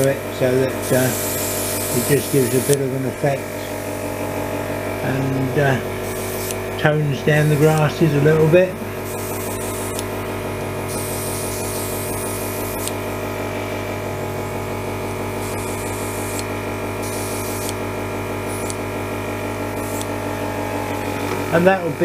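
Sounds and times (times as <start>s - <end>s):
compressor humming and pulsing: 0.0s - 22.0s
airbrush hissing: 0.7s - 2.9s, 6.0s - 6.6s, 7.2s - 8.2s, 9.0s - 10.1s, 10.8s - 13.0s, 15.3s - 17.8s, 18.4s - 18.8s, 19.6s - 20.2s.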